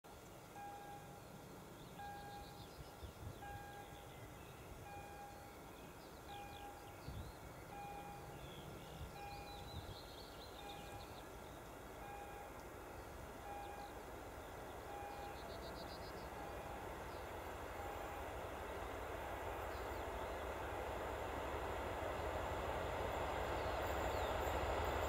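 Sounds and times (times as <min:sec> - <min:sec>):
level crossing warning beeps: 0:13.4 - 0:14.0.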